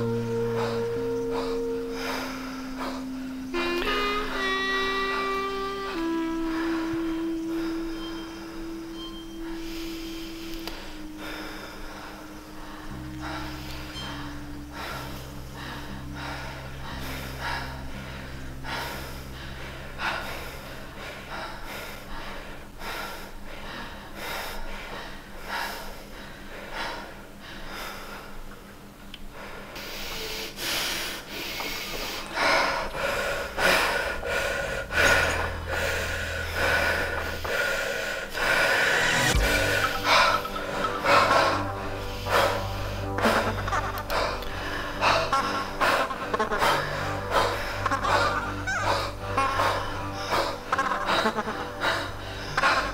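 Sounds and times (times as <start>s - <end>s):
low drone tones: 0.0s - 26.1s, 32.0s - 52.9s
short noisy pulses: 38.3s - 43.6s.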